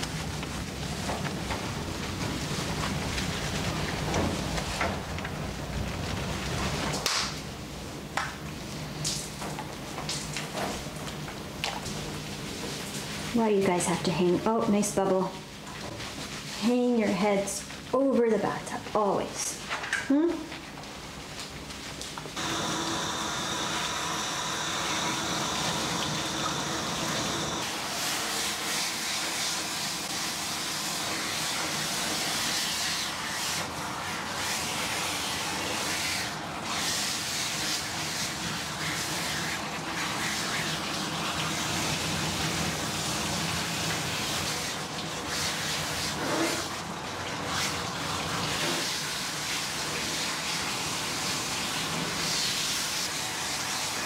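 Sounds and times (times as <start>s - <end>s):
water spraying onto dog's coat: 22.4s - 54.0s.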